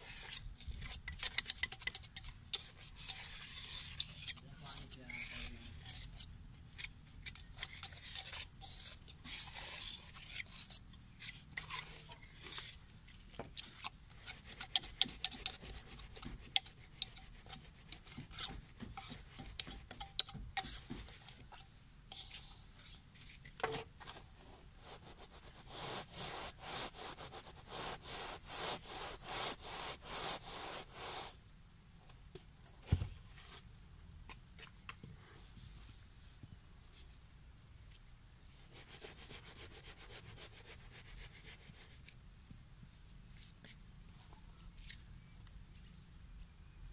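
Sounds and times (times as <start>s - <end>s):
tools scraping packed sand: 23.6s - 31.4s.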